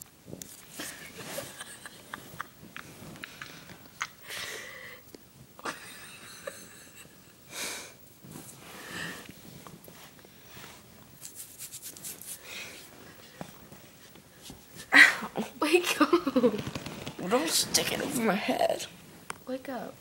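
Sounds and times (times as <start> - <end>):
person breathing: 3.2 - 5.1, 7.5 - 8.0, 8.6 - 9.3, 12.4 - 13.5.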